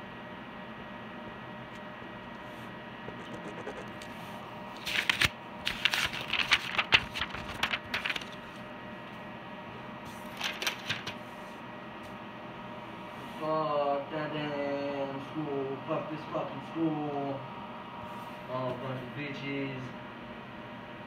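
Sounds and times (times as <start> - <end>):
electrical hum: 0.0 - 21.0
rapid clicks and rustling: 4.8 - 8.4, 10.3 - 11.2.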